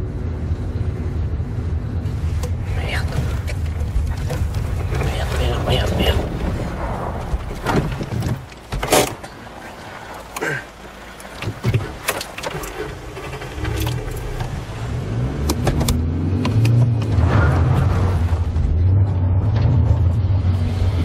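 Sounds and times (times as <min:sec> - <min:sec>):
car engine rumbling: 0:00.0 - 0:21.0
sharp clicks and knocks: 0:15.4 - 0:17.2.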